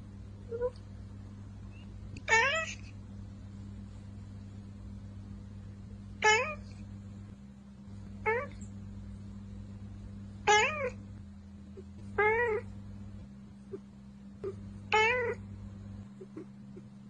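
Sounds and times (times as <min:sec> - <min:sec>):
cat meowing: 0:02.2 - 0:02.9, 0:06.2 - 0:06.7, 0:08.3 - 0:08.6, 0:10.5 - 0:11.0, 0:12.2 - 0:12.7, 0:14.4 - 0:15.4.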